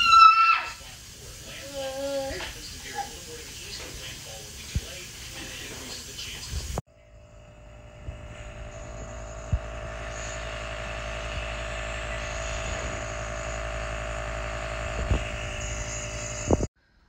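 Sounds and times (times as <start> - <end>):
small electric motor humming: 6.9 - 16.7.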